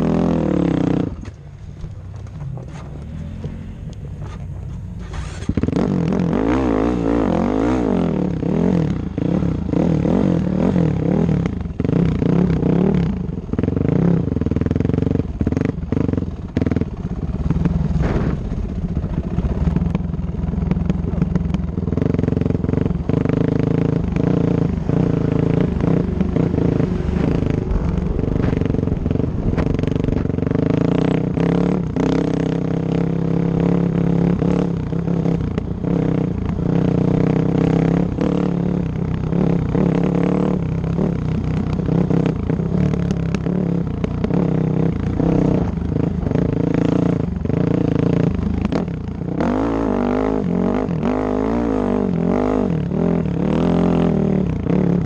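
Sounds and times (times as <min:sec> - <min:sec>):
dirt bike engine revving: 0:02.4 - 0:13.0, 0:21.9 - 0:55.0.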